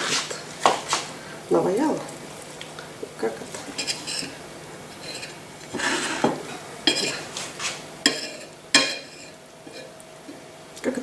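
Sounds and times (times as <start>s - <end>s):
cutlery clinking on plate: 6.2s - 7.2s, 8.1s - 9.9s.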